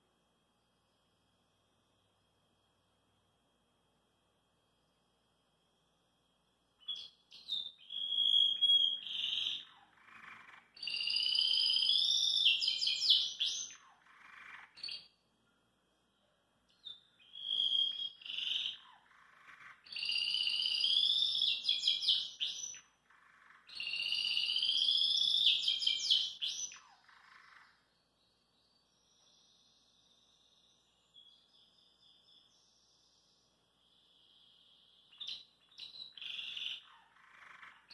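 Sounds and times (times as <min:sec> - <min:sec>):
canary singing trills: 0:06.8 - 0:15.2, 0:16.7 - 0:28.0, 0:28.6 - 0:37.9.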